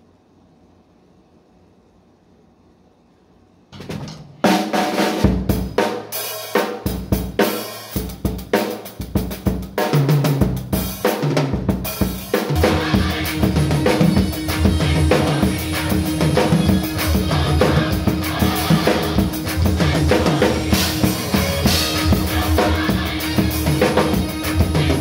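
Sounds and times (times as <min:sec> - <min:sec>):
drum kit groove: 0:03.8 - 0:25.0.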